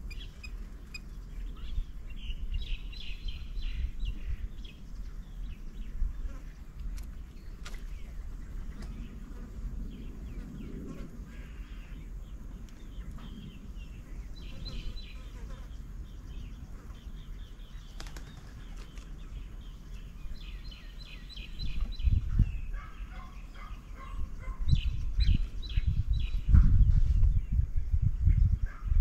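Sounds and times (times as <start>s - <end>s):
small birds chirping: 0.0s - 29.0s
dove wings flapping: 17.9s - 19.1s.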